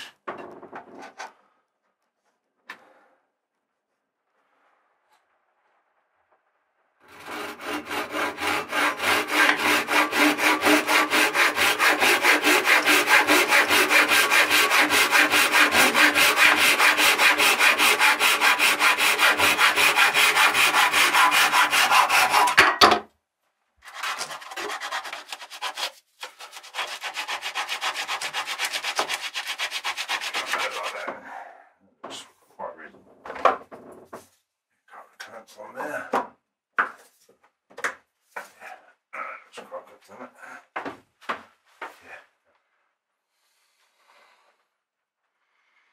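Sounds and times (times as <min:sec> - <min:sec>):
hand saw cutting wood: 0:07.0 - 0:22.6, 0:23.8 - 0:31.2.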